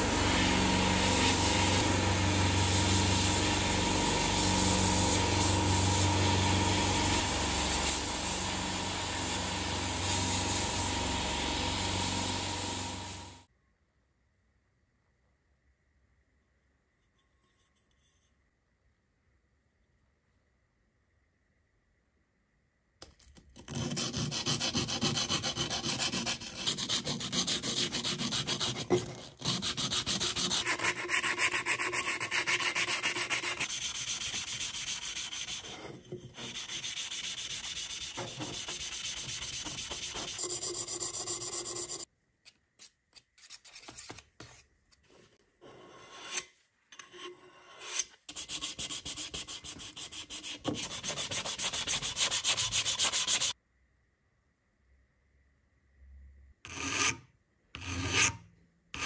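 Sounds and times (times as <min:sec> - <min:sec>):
sanding metal can: 0:00.0 - 0:13.3, 0:23.7 - 0:42.1, 0:48.3 - 0:53.6
small scrapes and knocks: 0:17.0 - 0:18.4, 0:38.1 - 0:52.0.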